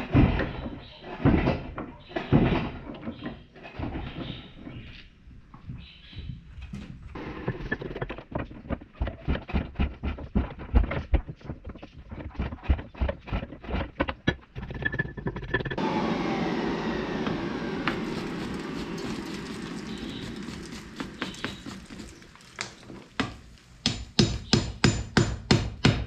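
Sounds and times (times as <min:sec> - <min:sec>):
steady rushing noise: 0:15.8 - 0:22.5.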